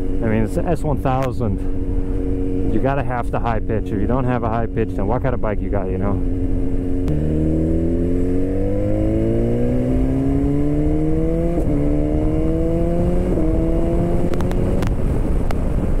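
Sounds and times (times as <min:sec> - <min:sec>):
motorcycle engine accelerating: 0:00.0 - 0:16.0
wind noise: 0:06.2 - 0:16.0.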